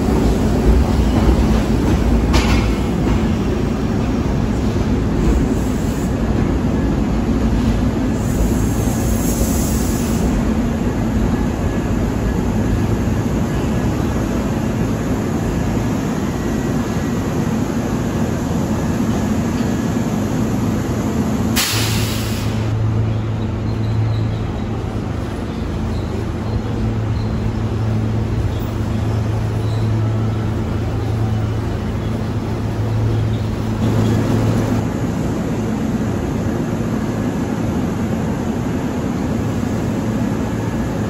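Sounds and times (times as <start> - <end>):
electric train rumbling: 0.0 - 41.0
low hum of standing train: 0.0 - 41.0
short air hiss: 21.6 - 22.7.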